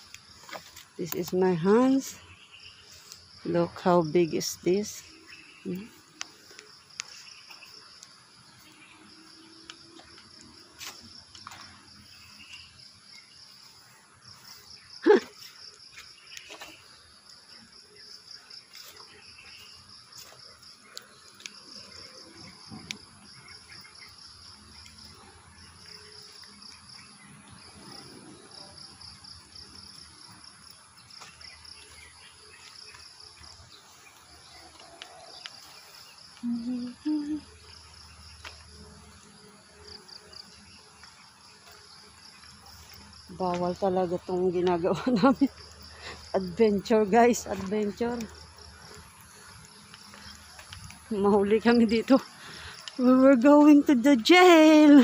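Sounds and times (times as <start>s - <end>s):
insects chirring: 0.0s - 55.0s
faint clicks: 5.7s - 7.2s.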